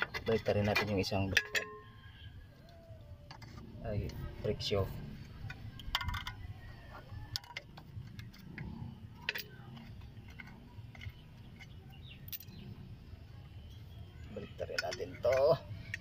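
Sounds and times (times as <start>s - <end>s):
metallic clicks of brake parts: 14.6s - 16.0s.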